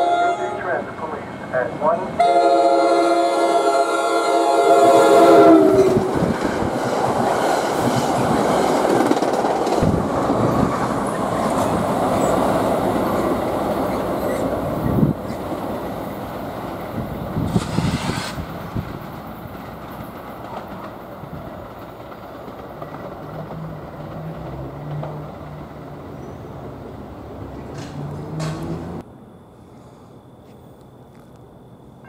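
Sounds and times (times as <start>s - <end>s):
locomotive horn chord: 0.0s - 6.1s
train wheel and rail noise: 0.0s - 32.0s.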